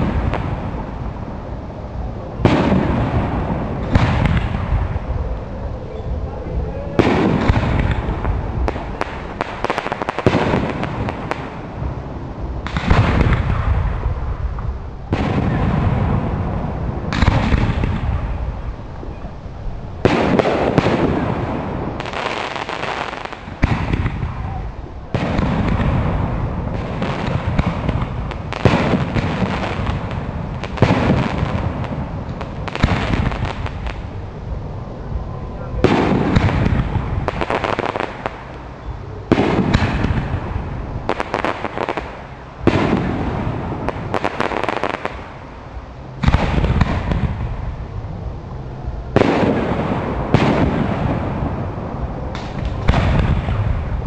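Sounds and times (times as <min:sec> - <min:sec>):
firework crackling: 0:00.0 - 0:54.0
firework shells booming: 0:02.3 - 0:12.0, 0:12.6 - 0:19.2, 0:20.0 - 0:45.4, 0:49.1 - 0:54.0.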